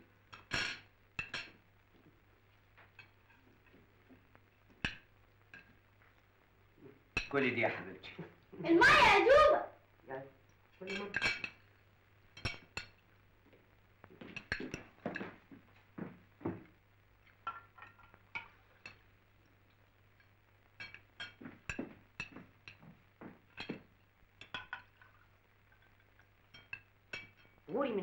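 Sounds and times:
cutlery tapping on plates: 0:00.3 - 0:05.8, 0:07.1 - 0:07.4, 0:10.8 - 0:11.7, 0:12.3 - 0:13.0, 0:14.0 - 0:19.1, 0:19.7 - 0:27.6.

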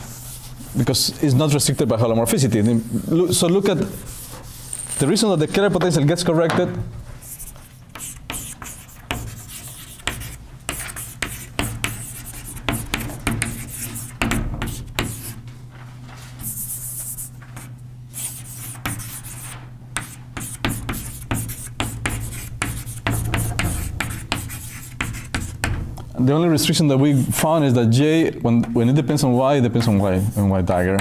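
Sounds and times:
steady low hum: 0:00.0 - 0:31.0
scratching strokes on a board: 0:07.3 - 0:15.4, 0:16.4 - 0:25.7, 0:28.8 - 0:31.0.

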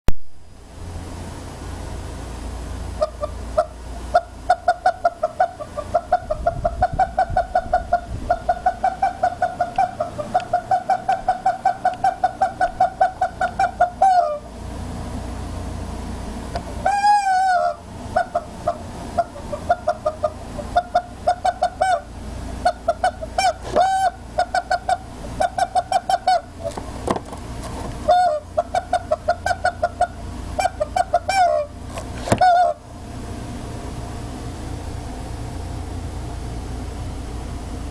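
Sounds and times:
rubber chicken squeaking: 0:03.0 - 0:14.5, 0:16.8 - 0:26.8, 0:28.0 - 0:32.8
rubber chicken toy squeaking: 0:22.7 - 0:26.8, 0:32.3 - 0:32.8.

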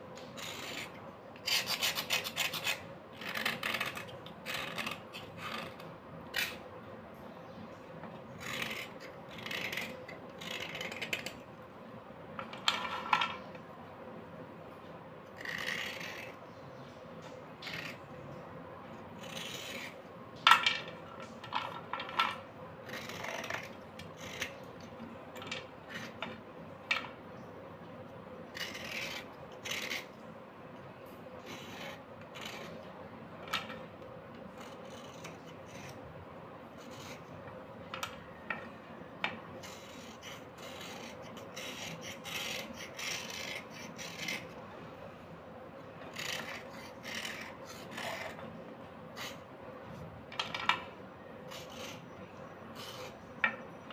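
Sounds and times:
knife scraping slate pencil: 0:00.2 - 0:06.6, 0:08.3 - 0:11.4, 0:15.4 - 0:16.4, 0:17.6 - 0:18.2, 0:19.2 - 0:20.0, 0:22.8 - 0:24.7, 0:25.4 - 0:26.4, 0:28.5 - 0:30.2, 0:31.4 - 0:32.9, 0:34.5 - 0:36.0, 0:36.7 - 0:38.7, 0:39.5 - 0:44.6, 0:46.0 - 0:49.5, 0:51.4 - 0:53.7.

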